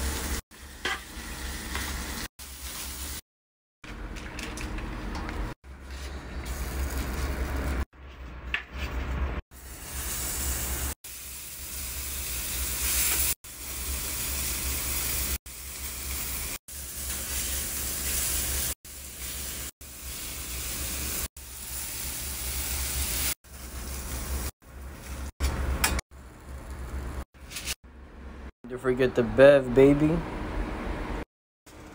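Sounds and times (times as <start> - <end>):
fish sizzling on a griddle: 9.6 - 24.5.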